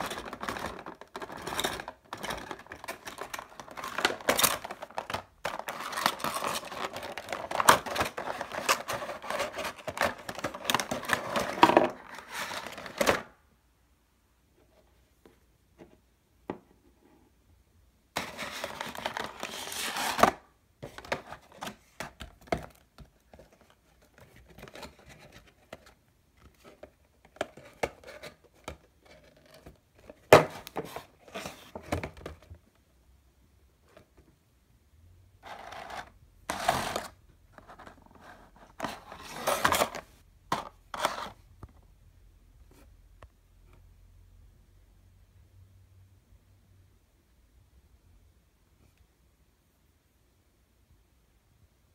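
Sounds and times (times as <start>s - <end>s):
plastic and cardboard crinkling: 0.0s - 13.3s, 18.2s - 32.6s, 35.4s - 41.4s.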